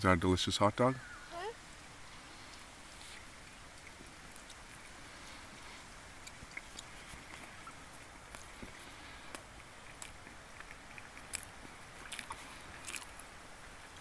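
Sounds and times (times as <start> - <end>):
low hiss: 0.0 - 14.0
child chewing: 1.4 - 14.0
mouth clicks: 6.2 - 13.3.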